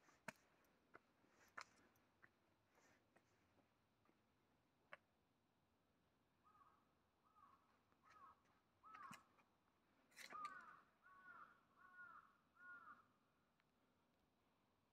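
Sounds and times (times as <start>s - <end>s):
crow cawing: 6.4s - 9.3s, 10.2s - 13.1s.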